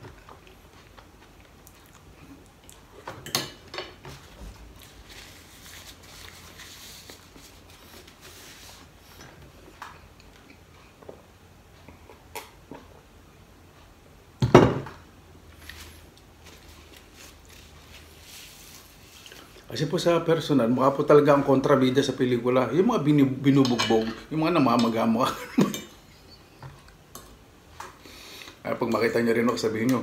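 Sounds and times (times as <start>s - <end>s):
paper napkin rustling: 4.1s - 9.1s, 15.6s - 19.7s.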